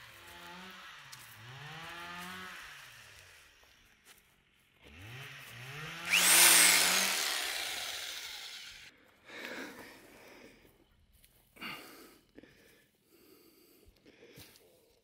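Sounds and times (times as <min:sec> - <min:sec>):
power tool motor humming: 0:00.0 - 0:03.8, 0:04.8 - 0:08.9.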